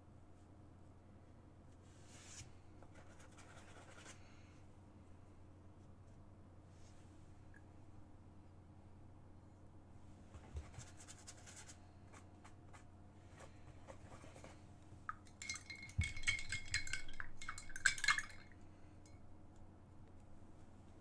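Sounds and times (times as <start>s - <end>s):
glass dishware clinking: 15.4s - 18.6s.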